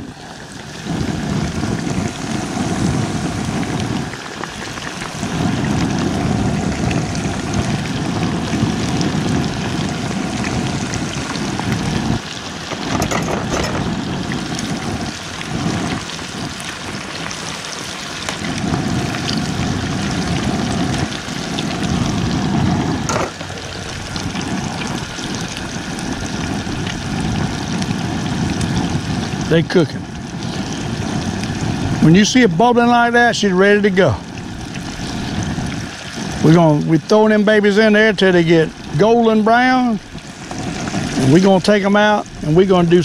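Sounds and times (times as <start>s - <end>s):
fish deep frying in oil: 0.0s - 43.0s
low rumble: 18.2s - 32.9s.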